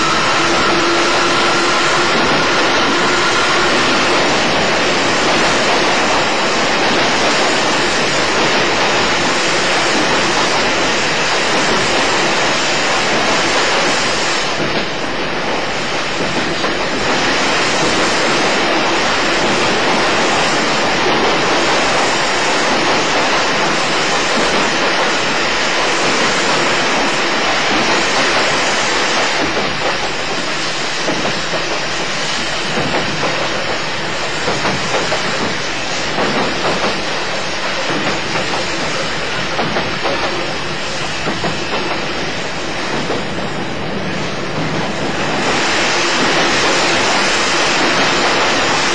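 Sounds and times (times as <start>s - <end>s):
electric train running at speed: 0.0s - 48.9s.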